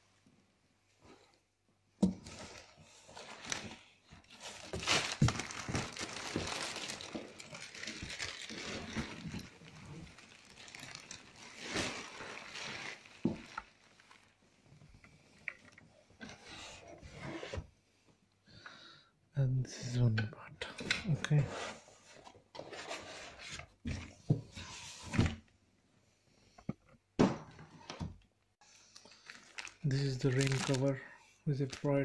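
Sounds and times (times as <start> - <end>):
plastic bags crinkling: 3.2 - 14.4, 28.7 - 32.0.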